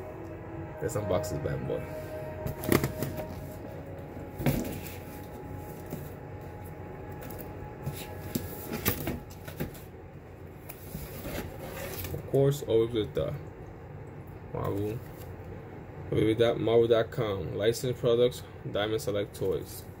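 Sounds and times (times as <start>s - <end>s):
packaging rustling and scraping: 2.5s - 9.9s, 10.6s - 12.4s.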